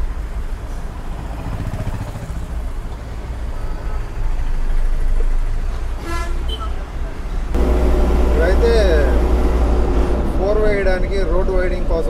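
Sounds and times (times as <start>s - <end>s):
road noise: 0.0s - 12.0s
truck engine running: 7.6s - 12.0s.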